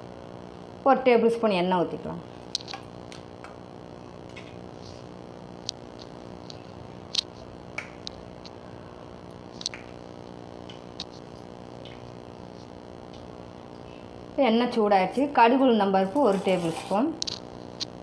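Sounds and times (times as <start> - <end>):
steady low hum: 0.0 - 18.0
oil ticking and popping: 10.6 - 12.3.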